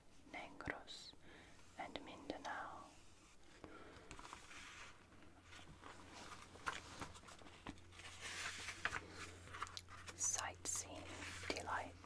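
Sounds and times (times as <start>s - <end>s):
paper rustling: 4.1s - 10.3s
page turning: 4.1s - 11.6s.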